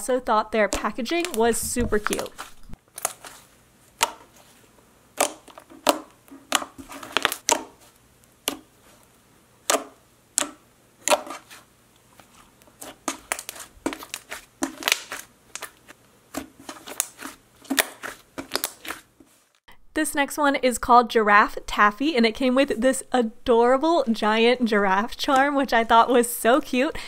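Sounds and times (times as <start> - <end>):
hands squishing slime: 0.7 - 4.6, 5.2 - 9.0, 9.6 - 19.1.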